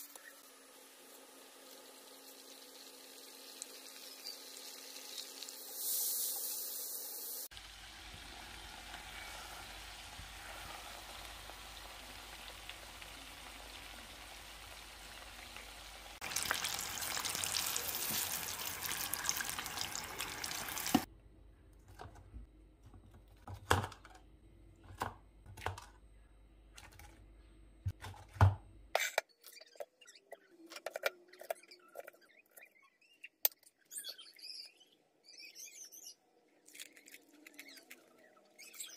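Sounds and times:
chicken deep-frying in oil: 0.0 - 21.1
birds chirping faintly: 29.3 - 38.9.

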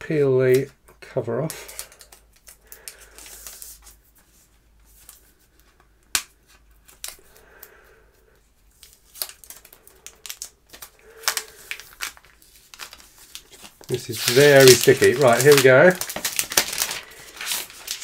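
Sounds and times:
plastic film peeling: 1.5 - 4.0, 8.8 - 18.0.

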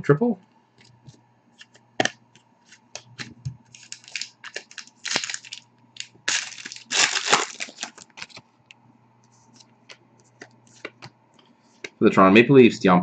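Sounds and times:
foil wrapper crinkling and tearing: 3.2 - 8.4.

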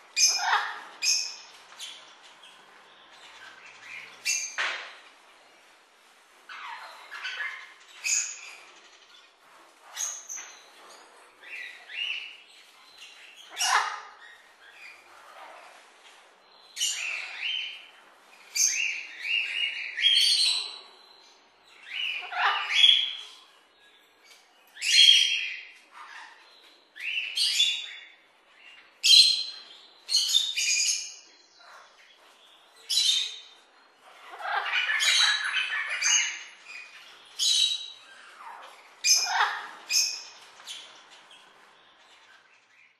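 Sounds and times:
parrots calling: 0.2 - 1.4, 13.4 - 15.7, 21.9 - 23.2, 34.0 - 41.0.

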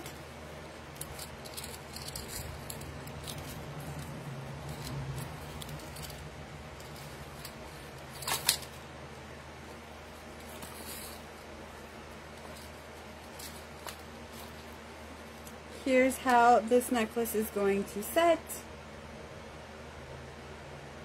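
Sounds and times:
low steady hum: 0.0 - 21.0
metal chain clicking and jingling: 1.0 - 6.2.

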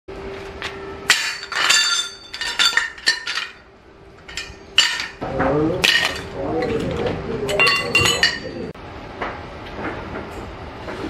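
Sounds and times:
steel tubes clanking on concrete: 1.1 - 5.2, 5.8 - 8.7.

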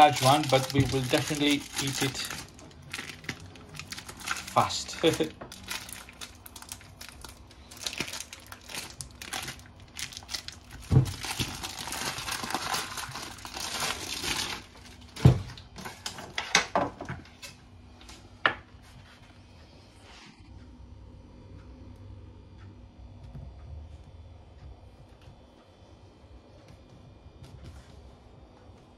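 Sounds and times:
plastic wrap crinkling and tearing: 0.0 - 16.5.

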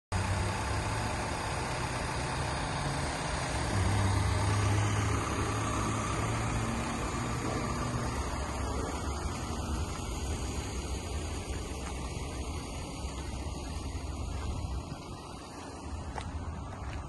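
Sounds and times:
diesel engine idling: 0.1 - 17.0.

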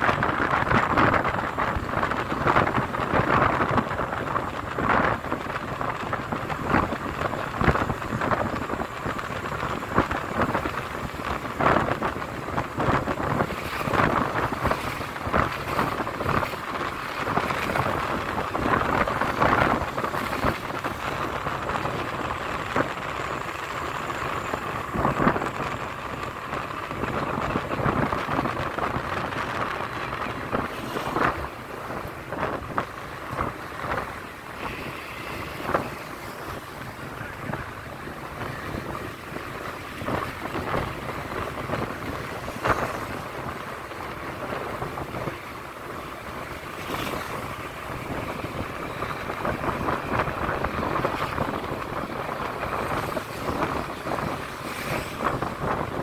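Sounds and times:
wind buffeting microphone: 0.0 - 56.0.

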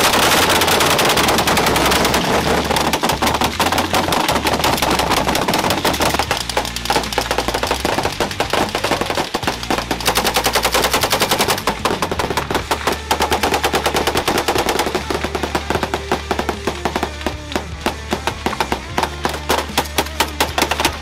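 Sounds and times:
rifles and machine guns firing: 0.0 - 21.0.

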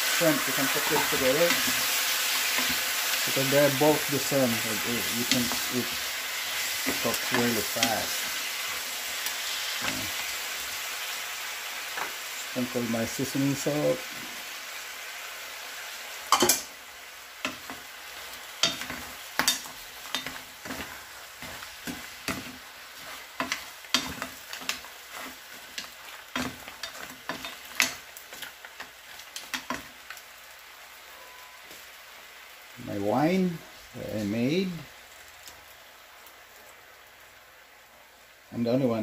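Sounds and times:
seafood sizzling in a frying pan: 0.0 - 39.0
spatula and shells knocking on pan: 18.6 - 28.5.

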